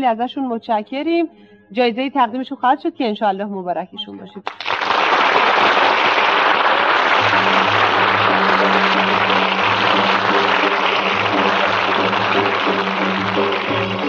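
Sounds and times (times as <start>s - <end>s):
music: 0.0s - 14.0s
audience applauding: 4.5s - 14.0s.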